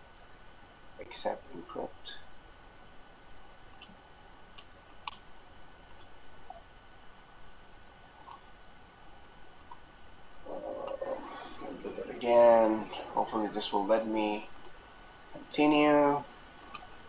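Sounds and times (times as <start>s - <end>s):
steady low hiss: 0.0s - 17.0s
faint computer mouse clicks: 8.2s - 8.4s.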